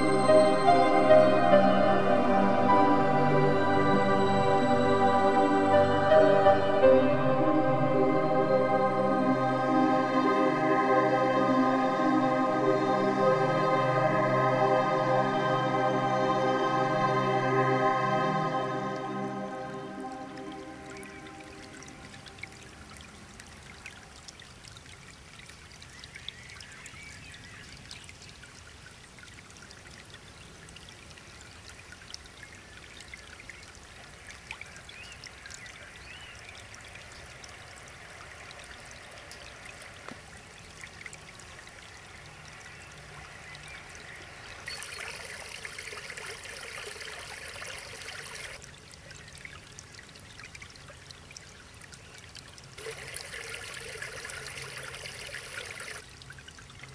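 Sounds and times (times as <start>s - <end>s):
brook trickling over rocks: 18.9s - 56.9s.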